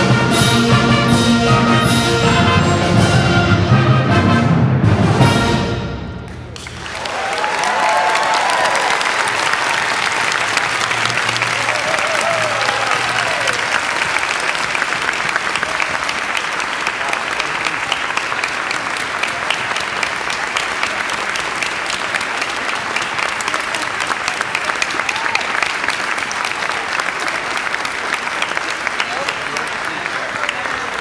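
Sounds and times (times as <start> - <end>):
audience applauding: 6.4 - 31.0.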